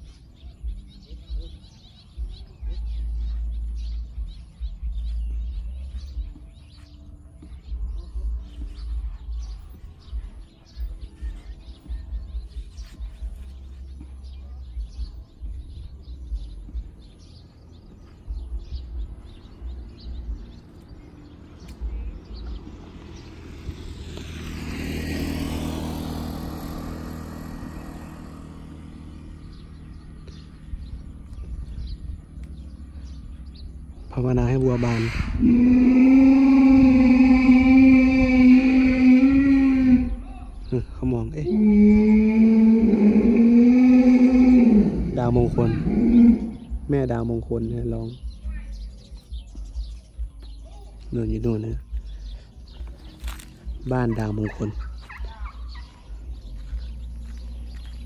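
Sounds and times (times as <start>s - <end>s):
birds chirping: 0.0s - 58.0s
vehicle passing: 0.0s - 58.0s
wind gusting on microphone: 14.8s - 50.6s.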